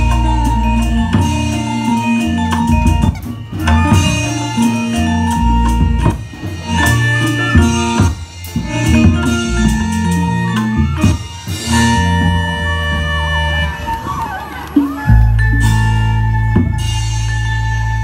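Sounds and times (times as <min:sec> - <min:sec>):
drums: 0:00.0 - 0:18.0
loud ensemble music over pa: 0:00.0 - 0:18.0.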